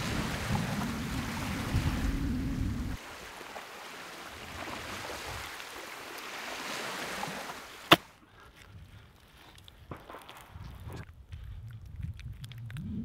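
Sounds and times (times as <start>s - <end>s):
small waves washing on shore: 0.0s - 8.1s
wind: 0.0s - 13.0s.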